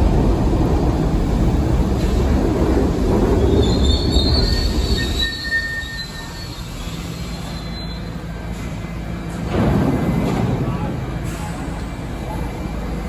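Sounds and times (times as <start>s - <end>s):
train wheels rumbling on rail: 0.0s - 13.0s
wheel and brake squeals: 3.4s - 8.3s.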